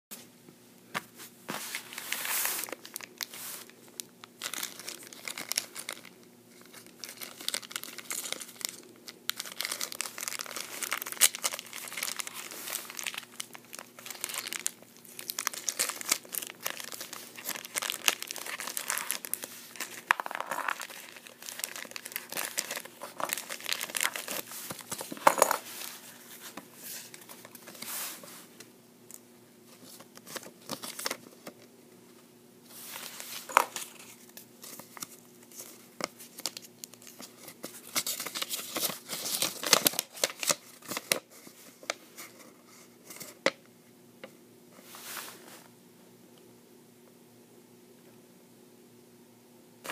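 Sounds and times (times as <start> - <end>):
plastic bag crinkling: 1.7 - 26.4
plastic bag tearing: 4.4 - 24.9.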